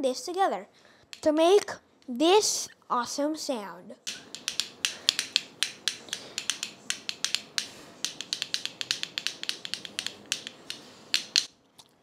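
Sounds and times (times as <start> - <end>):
bottle cap castanets clicking: 4.1 - 11.5.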